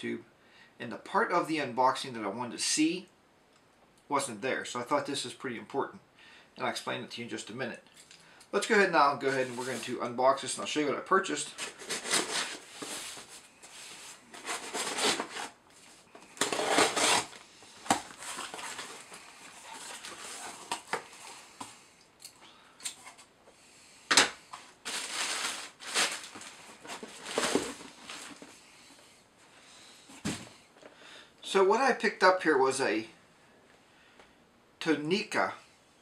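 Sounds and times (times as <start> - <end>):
packing rustling and crinkling: 11.4 - 21.4, 24.6 - 28.6.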